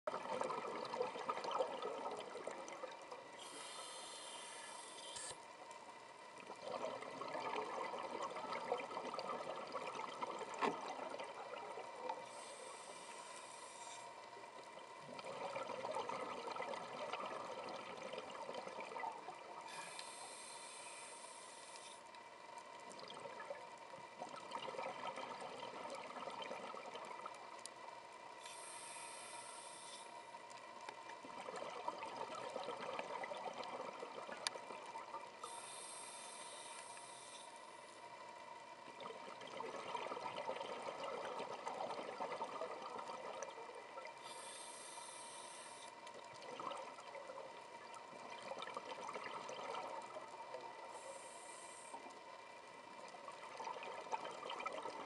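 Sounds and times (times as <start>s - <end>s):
regulator inhale hiss: 3.3s - 5.5s, 12.1s - 14.3s, 19.6s - 22.1s, 28.4s - 30.4s, 35.4s - 38.1s, 44.2s - 46.1s, 50.8s - 52.2s.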